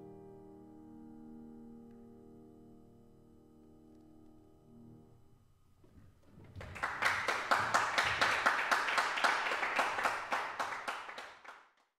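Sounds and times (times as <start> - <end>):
applause: 6.5 - 11.9.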